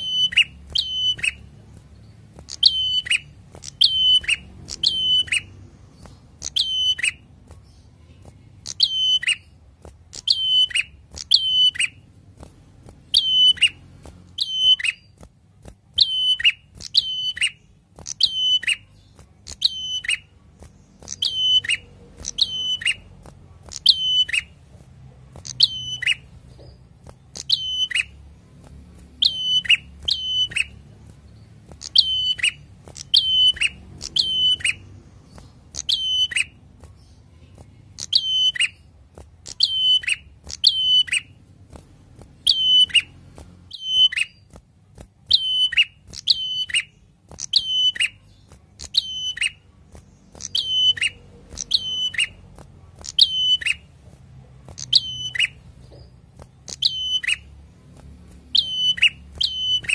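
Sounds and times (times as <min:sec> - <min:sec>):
bird singing whistled phrase: 0:06.4 - 0:07.2, 0:08.7 - 0:09.5.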